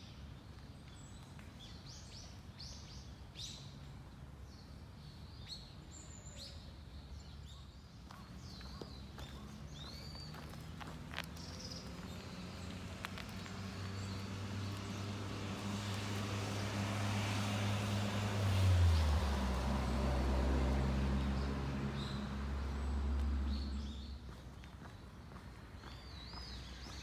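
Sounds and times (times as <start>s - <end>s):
vehicle engine hum: 8.2s - 27.0s.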